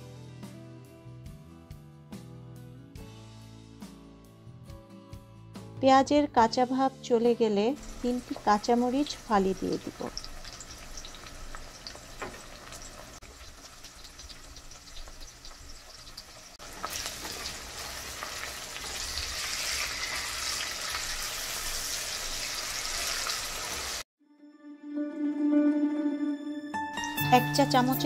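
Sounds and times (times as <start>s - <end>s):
onions sizzling in hot oil: 7.8s - 24.1s.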